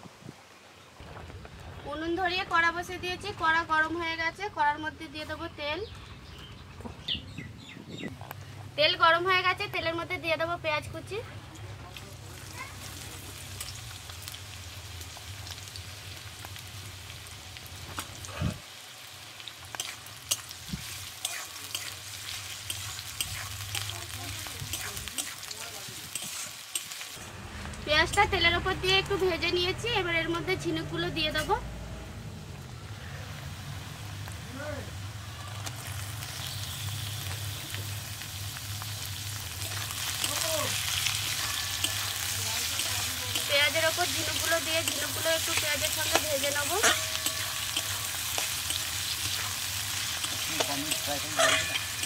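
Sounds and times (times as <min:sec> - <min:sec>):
onions sizzling in oil: 0:08.8 - 0:31.7, 0:32.4 - 0:52.0
metal spatula scraping: 0:19.8 - 0:25.5, 0:40.2 - 0:52.0.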